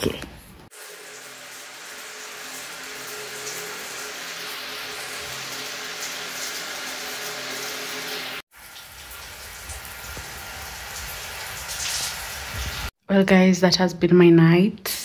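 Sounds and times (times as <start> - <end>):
shower spraying onto tiles: 0.8 - 12.9.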